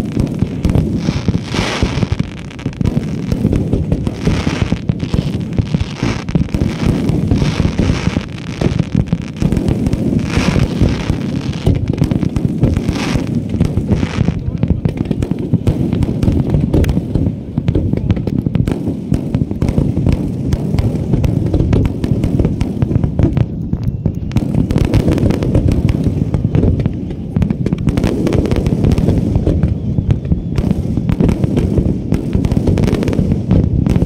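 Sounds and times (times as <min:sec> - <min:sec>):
fireworks booming and popping: 0:00.0 - 0:34.0.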